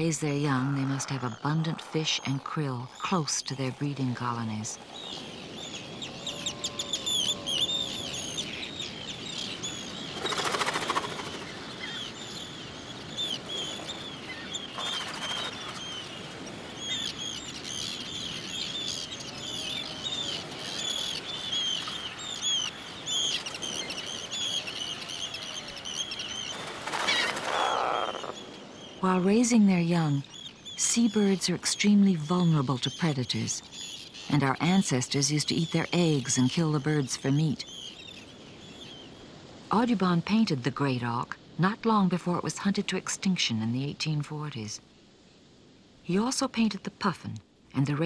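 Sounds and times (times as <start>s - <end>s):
high chirping seabird calls: 0.0s - 39.2s
low bird calls: 0.0s - 39.3s.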